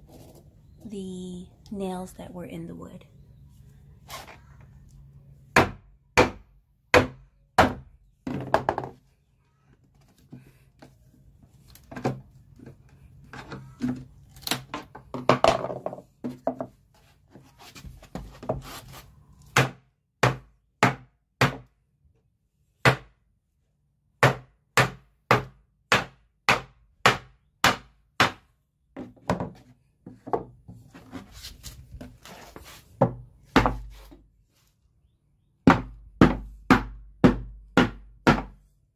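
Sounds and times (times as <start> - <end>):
hammer knocking on wood: 35.7 - 38.6.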